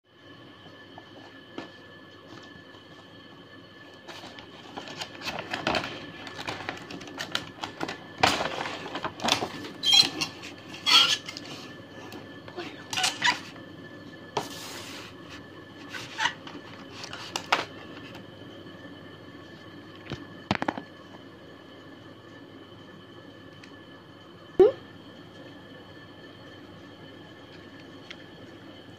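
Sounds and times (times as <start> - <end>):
packaging rustle: 4.0 - 10.7.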